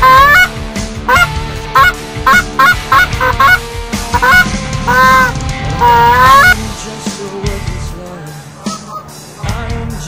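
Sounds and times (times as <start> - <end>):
goose call honks and clucks: 0.0 - 0.5, 1.1 - 6.6.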